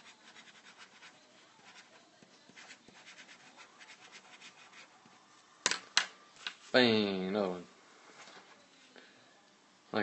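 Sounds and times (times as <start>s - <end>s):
pen scratching on paper: 0.0s - 5.2s.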